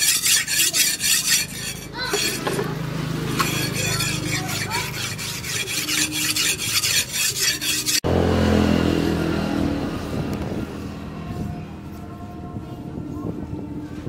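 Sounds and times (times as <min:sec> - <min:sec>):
knife blade rasping on whetstone: 0:00.0 - 0:08.0.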